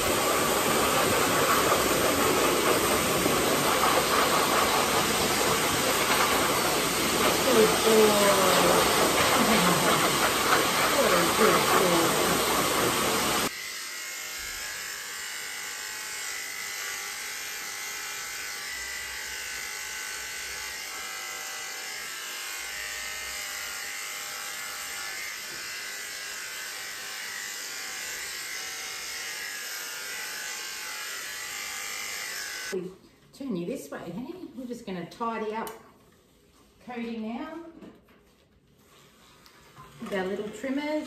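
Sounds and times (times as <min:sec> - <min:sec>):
blow dryer blowing loudly: 0:00.0 - 0:13.5
electric clippers buzzing: 0:00.0 - 0:32.8.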